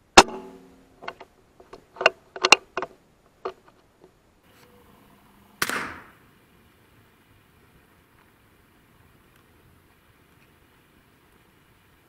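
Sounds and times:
air rifle shot: 0.2 - 0.8, 5.6 - 6.2.

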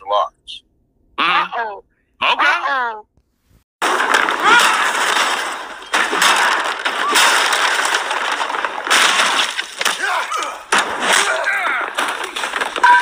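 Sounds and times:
loud smashing and breaking: 3.8 - 13.0.

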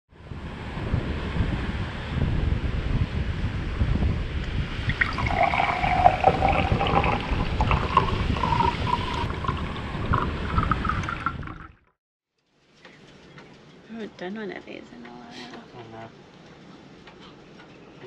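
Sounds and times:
wind buffeting microphone: 0.2 - 11.8.

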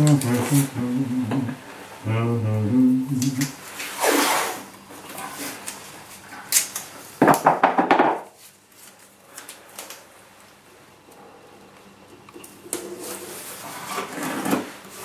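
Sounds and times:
masking tape pulled off roll: 3.2 - 4.7.

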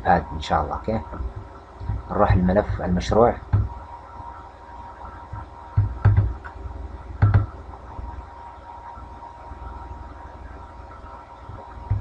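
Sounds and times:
faint steady tone: 0.0 - 12.0
steady background hum: 0.0 - 12.0.

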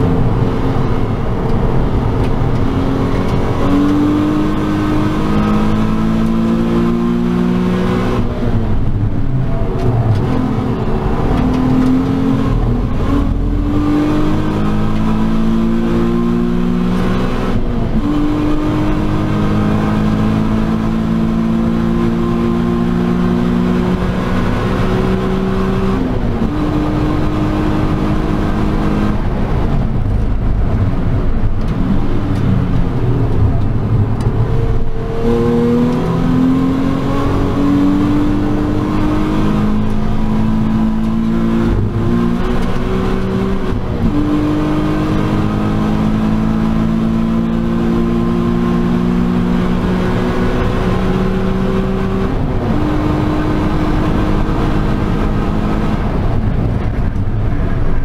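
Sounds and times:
car engine revving hard: 0.0 - 30.1, 30.7 - 57.5.

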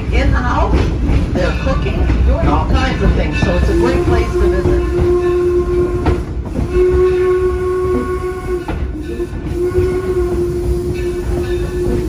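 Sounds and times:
train rumbling and clacking on track: 0.0 - 12.0
steam whistle blasts: 3.7 - 12.0.

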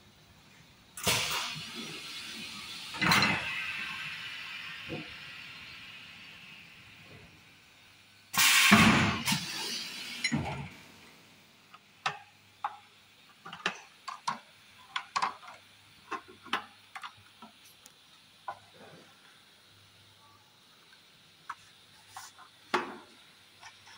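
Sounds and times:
hiss: 0.5 - 11.1.

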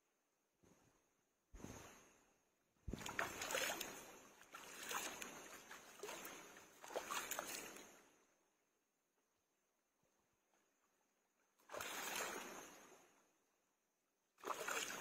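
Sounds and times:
water splashing and sloshing: 2.8 - 8.4, 10.4 - 13.4, 14.4 - 15.0.

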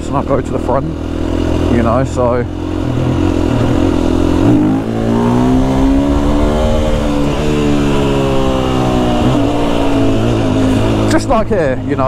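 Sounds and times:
motorcycle engine revving: 0.0 - 12.0.

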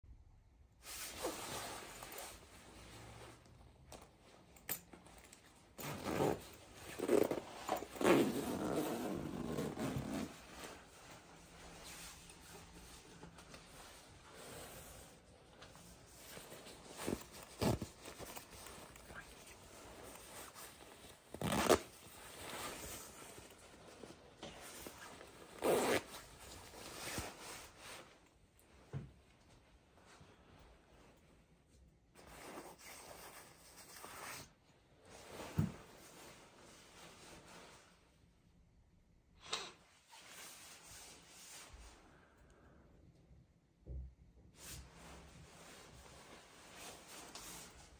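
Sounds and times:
nylon jacket rustling: 0.8 - 28.8, 32.2 - 38.2, 44.6 - 47.9
zipper being zipped: 5.8 - 10.8, 17.0 - 23.2, 24.8 - 27.4.

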